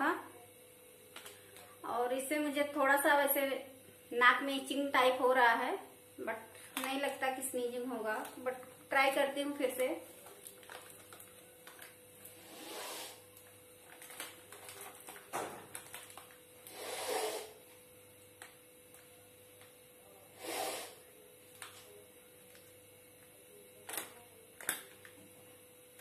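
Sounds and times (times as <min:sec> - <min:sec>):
plastic packet crinkling: 0:10.2 - 0:12.0, 0:13.4 - 0:16.5
woman sniffing: 0:12.4 - 0:13.2, 0:16.7 - 0:17.6, 0:20.4 - 0:21.0.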